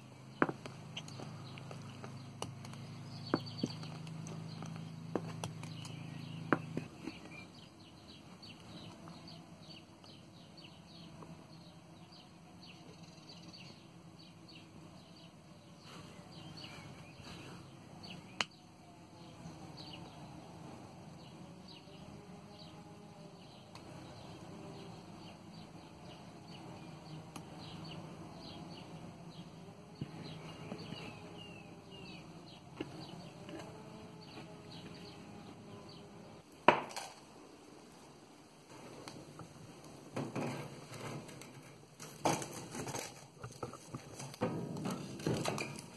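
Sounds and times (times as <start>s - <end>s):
faint bird chirps: 0.0s - 20.3s.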